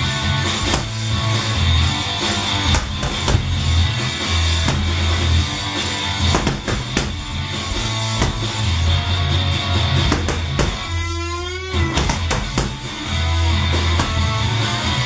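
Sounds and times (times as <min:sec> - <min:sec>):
rock music with drums and guitar: 0:00.0 - 0:15.0.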